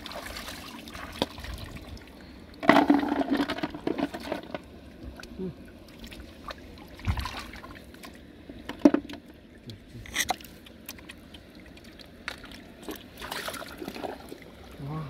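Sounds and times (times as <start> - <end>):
hands sloshing through muddy water: 0.0 - 2.1, 10.3 - 14.8
water splashes: 0.0 - 15.0.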